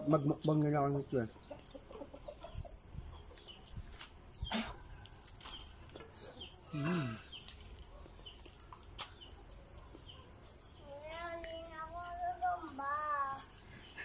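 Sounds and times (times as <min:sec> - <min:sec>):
small birds chirping: 0:00.0 - 0:14.0
low vocal hum: 0:06.7 - 0:07.4.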